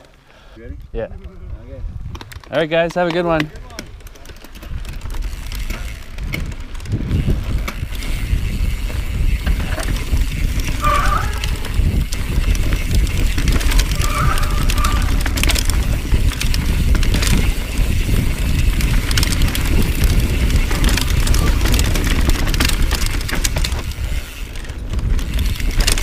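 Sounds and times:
wind rumble on microphone: 0.6 - 2.8, 4.6 - 26.0
bike frame clattering and rattling: 0.9 - 26.0
tyres on dirt: 2.0 - 26.0.

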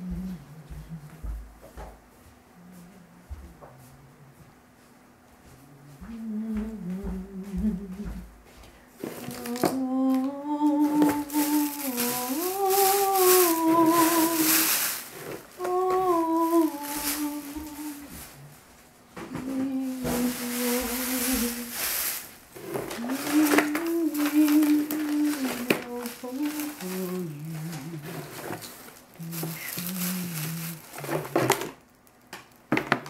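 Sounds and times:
person humming a slow tune: 0.0 - 1.7, 2.4 - 4.5, 5.5 - 18.6, 19.2 - 31.7.

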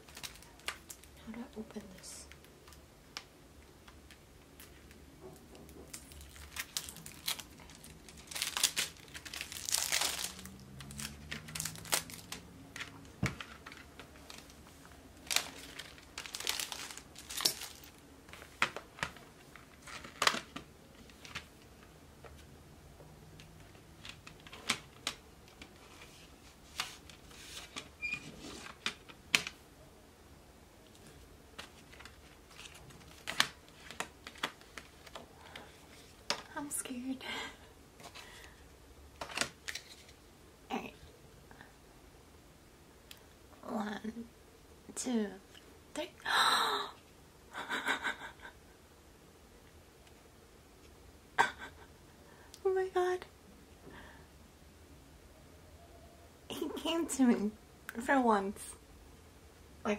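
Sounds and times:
plastic wrapping crinkling and tearing: 0.0 - 1.2, 4.6 - 21.5, 31.6 - 35.7.

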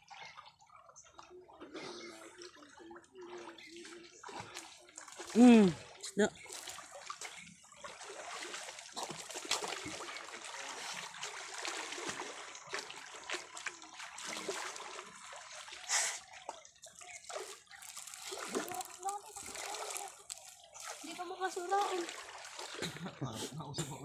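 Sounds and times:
water sloshing around wading man: 0.0 - 23.4
fish thrashing in net: 17.2 - 21.0.

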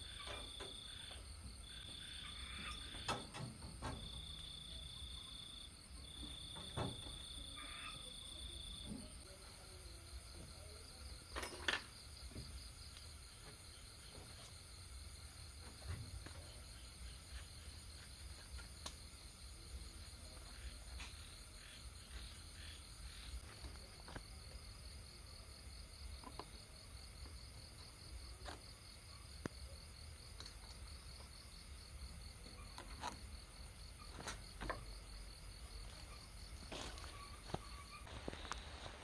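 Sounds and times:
crickets trilling: 0.0 - 39.0.

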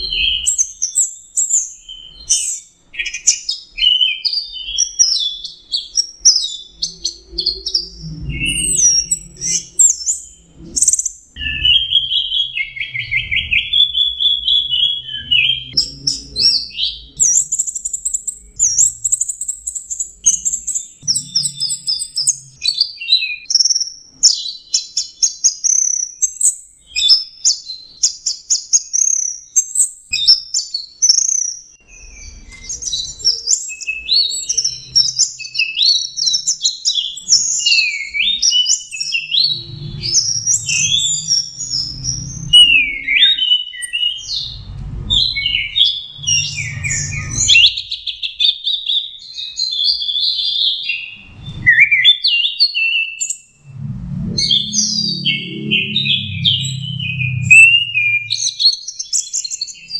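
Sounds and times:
low rumbling thuds: 44.3 - 47.6
thrush singing: 53.6 - 58.5.

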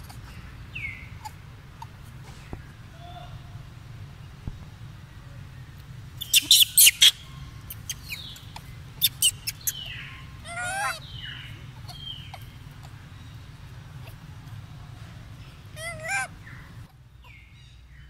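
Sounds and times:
baby macaque squeaking: 0.0 - 2.5, 6.2 - 13.2, 15.7 - 16.6
steady low hum: 0.0 - 18.0
wavering cry: 9.0 - 13.0, 15.4 - 16.9.

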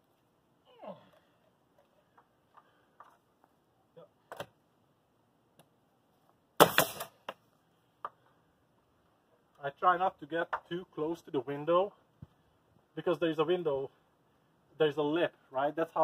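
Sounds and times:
nail gun shot: 6.6 - 7.2.

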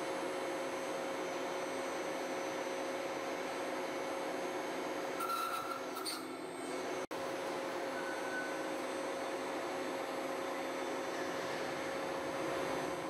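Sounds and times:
brief higher tone: 7.9 - 8.7.

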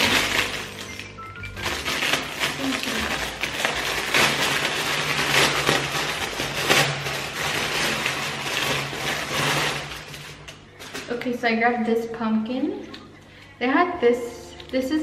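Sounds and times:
packaging rustling and crinkling: 0.0 - 11.4.

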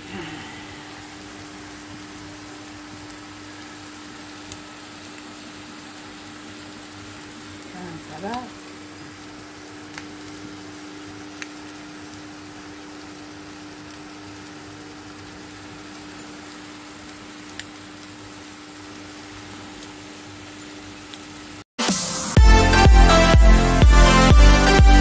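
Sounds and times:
food sizzling in a frying pan: 0.0 - 21.6.

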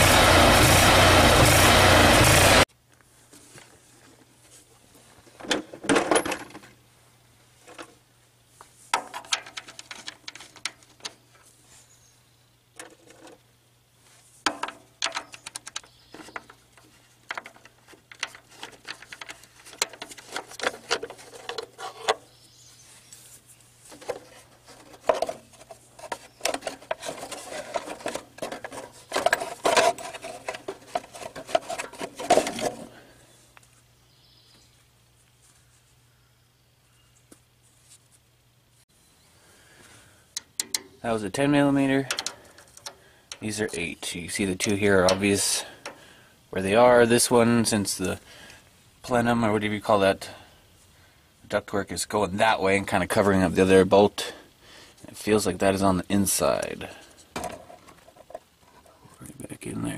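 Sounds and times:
plastic parts clicking and rattling: 9.0 - 11.2, 14.5 - 22.2, 23.9 - 32.9, 42.0 - 43.5.

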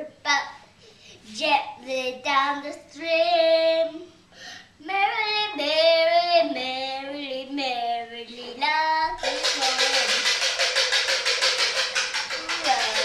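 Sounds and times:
young boy singing: 1.2 - 4.1, 4.8 - 10.1.

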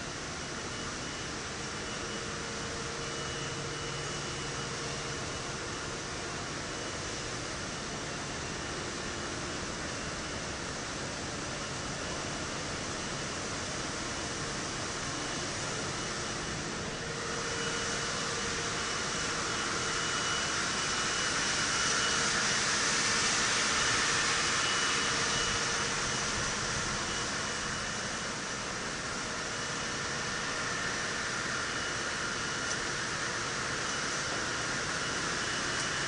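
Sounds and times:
production line machinery hiss: 12.3 - 36.0.

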